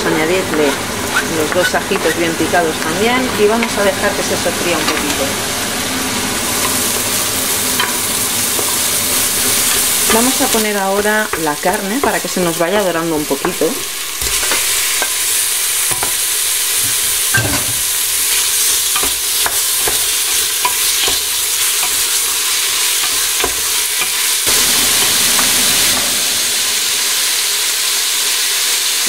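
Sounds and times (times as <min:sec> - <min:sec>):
meat sizzling in oil: 0:00.0 - 0:29.0
wooden spoon scraping a pot: 0:00.4 - 0:02.8.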